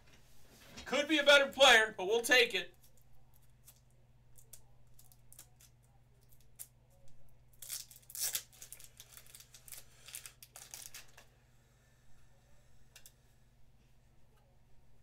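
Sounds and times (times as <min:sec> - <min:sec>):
plastic wrapping crinkling: 0:07.5 - 0:11.3.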